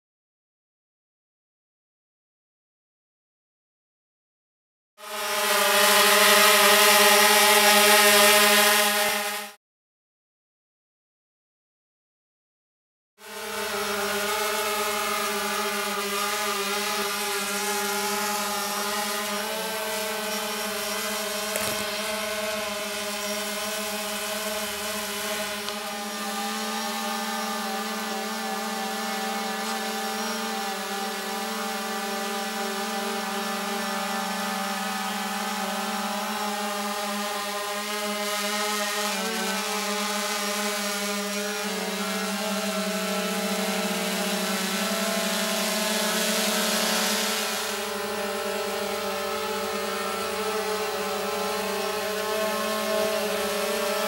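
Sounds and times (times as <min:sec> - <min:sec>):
drone propellers buzzing: 0:05.0 - 0:09.6, 0:13.2 - 0:54.0.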